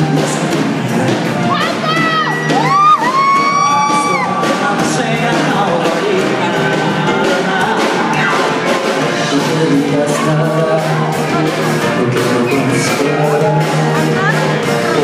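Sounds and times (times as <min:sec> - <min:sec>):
live band music: 0:00.0 - 0:15.0
audience member screaming: 0:01.8 - 0:04.4.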